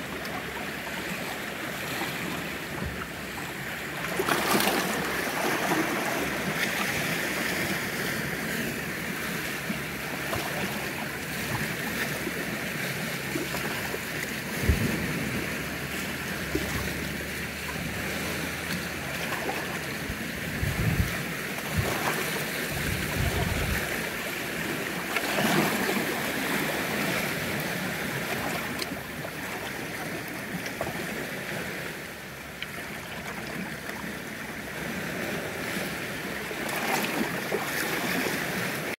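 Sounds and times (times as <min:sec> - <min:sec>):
small waves washing on shore: 0:00.0 - 0:39.0
steady wind: 0:00.0 - 0:39.0
wind thumping on microphone: 0:14.6 - 0:15.8, 0:20.0 - 0:24.0.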